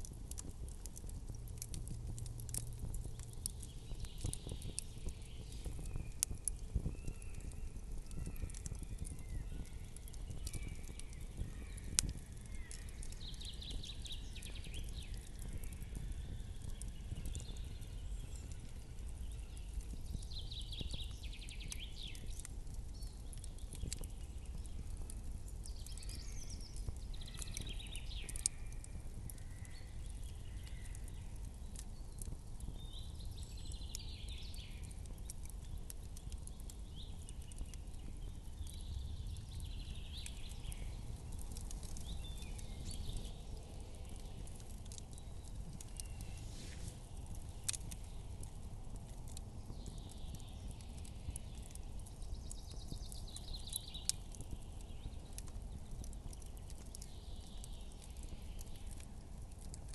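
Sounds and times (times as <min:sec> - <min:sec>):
campfire crackling: 0:00.0 - 0:59.9
soft hiss or rustle: 0:45.8 - 0:48.0.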